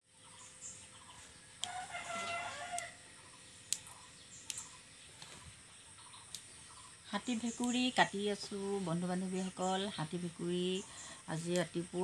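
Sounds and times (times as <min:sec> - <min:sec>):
rooster crowing: 0:01.6 - 0:03.1.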